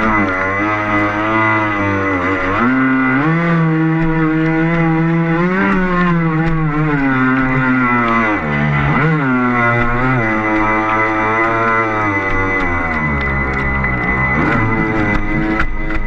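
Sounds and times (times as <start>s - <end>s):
electric motor whining: 0.0s - 16.0s
thin high whine: 6.0s - 16.0s.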